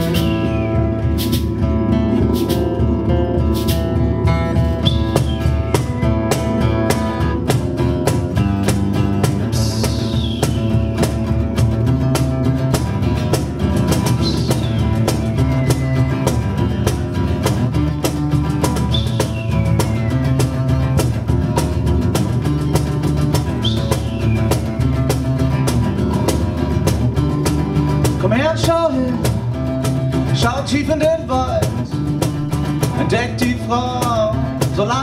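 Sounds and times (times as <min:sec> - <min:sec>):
acoustic guitar strumming: 0:00.0 - 0:35.0
hand drums: 0:00.0 - 0:35.0
falling whistle-like sweep: 0:00.1 - 0:06.8, 0:14.2 - 0:16.6.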